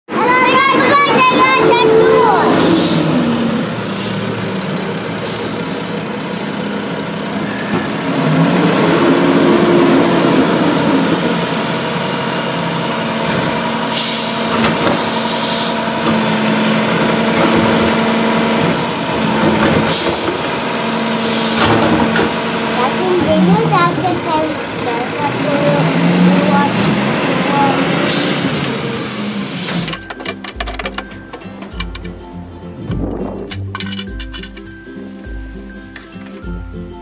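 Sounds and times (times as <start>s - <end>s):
diesel engine idling: 0.1s - 32.1s
air hiss bursts: 13.9s - 14.4s.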